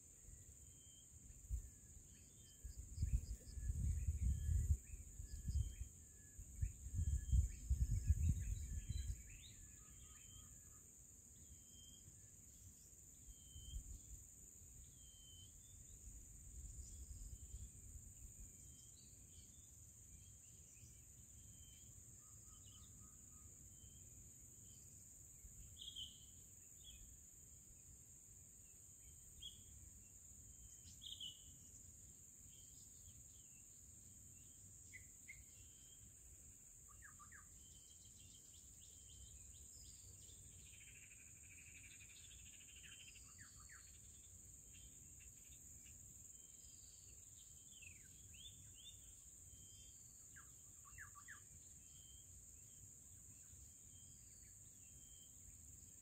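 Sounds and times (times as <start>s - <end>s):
small birds chirping: 0.0s - 10.7s, 11.4s - 28.0s, 28.7s - 56.0s
high insect drone: 24.7s - 56.0s.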